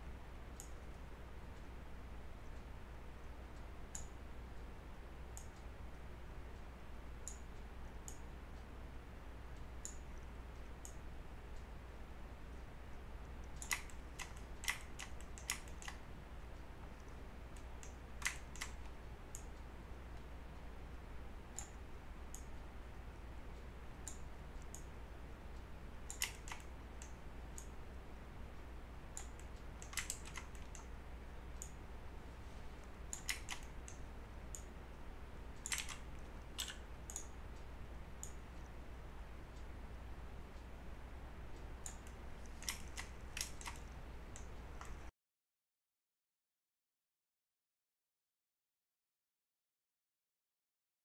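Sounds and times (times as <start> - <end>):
low steady hum: 0.0 - 45.1
mouse and keyboard clicks: 13.4 - 16.1, 16.8 - 19.6, 26.0 - 27.7, 29.2 - 30.9, 32.5 - 34.7, 35.6 - 37.4, 38.2 - 38.8, 41.8 - 45.1.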